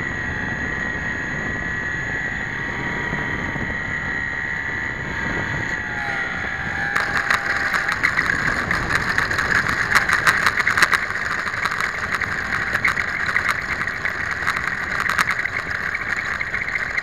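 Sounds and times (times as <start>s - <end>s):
model plane motor whine: 0.0s - 17.0s
wheels rattling over dirt: 5.2s - 17.0s.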